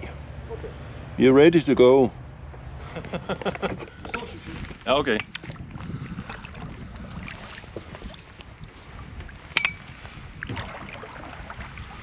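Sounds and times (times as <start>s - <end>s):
water around canoe hull: 2.8s - 12.0s
wind rumble on microphone: 3.1s - 12.0s.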